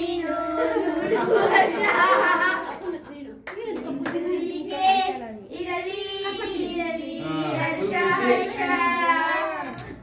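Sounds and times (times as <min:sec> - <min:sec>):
child singing: 0:00.0 - 0:02.1, 0:03.8 - 0:09.7
voices singing: 0:00.0 - 0:02.8, 0:03.8 - 0:09.9.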